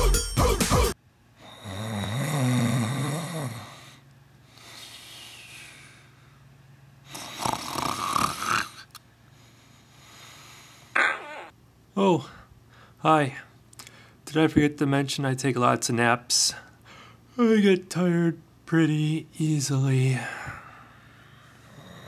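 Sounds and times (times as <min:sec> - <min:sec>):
pop song: 0:00.0 - 0:01.0
puppy snoring: 0:01.4 - 0:04.0, 0:07.1 - 0:08.9, 0:21.6 - 0:22.0
soft breathing: 0:03.7 - 0:07.3, 0:09.2 - 0:11.0, 0:20.2 - 0:22.0.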